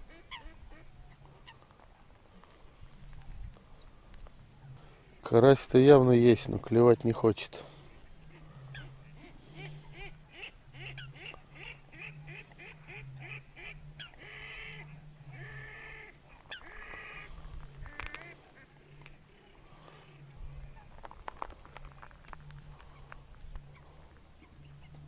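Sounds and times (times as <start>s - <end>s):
waterfowl quacking: 0.0s - 1.7s, 8.2s - 20.9s.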